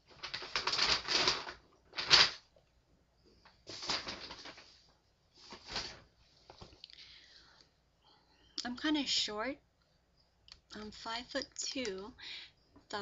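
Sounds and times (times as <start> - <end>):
rustling and crinkling: 0.0 - 6.9.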